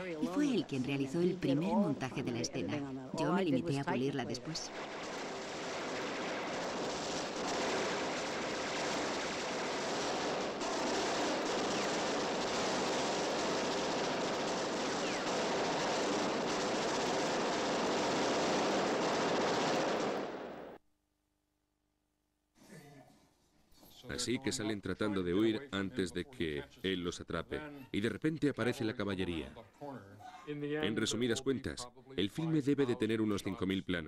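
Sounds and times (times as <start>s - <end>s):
volley of gunfire: 4.7s - 20.8s.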